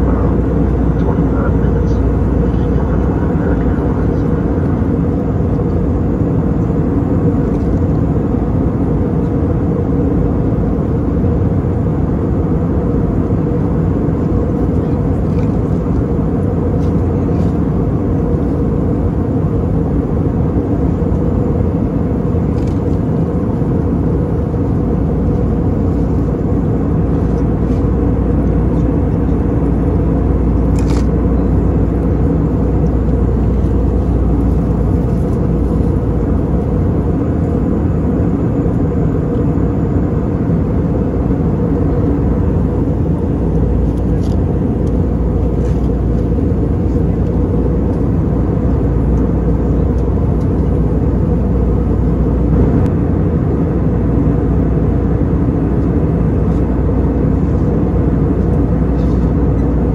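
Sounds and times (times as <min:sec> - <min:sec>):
airplane cabin engine roar: 0:00.0 - 0:59.9.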